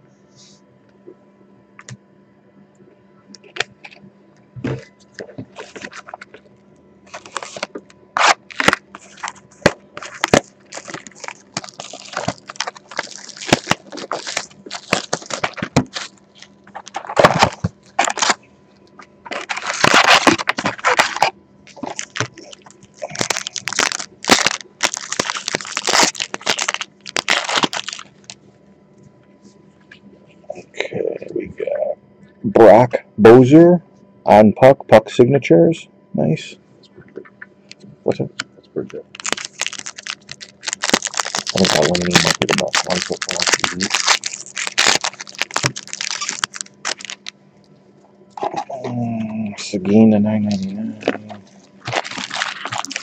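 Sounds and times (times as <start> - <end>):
packaging crinkling and tearing: 5.5 - 6.4, 7.1 - 18.4, 19.2 - 28.4, 39.1 - 47.4, 50.5 - 53.0.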